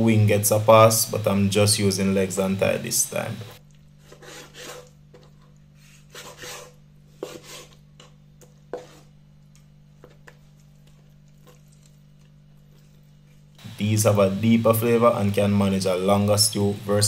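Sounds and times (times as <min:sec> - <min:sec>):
low steady hum: 0:00.0 - 0:17.0
knife scraping cutting board: 0:04.0 - 0:09.2.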